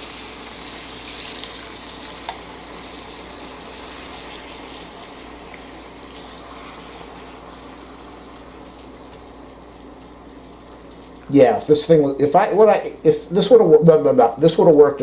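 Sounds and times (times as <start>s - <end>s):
meat sizzling on a grill plate: 0.0s - 11.6s
spatula scraping and chopping meat: 0.1s - 11.9s.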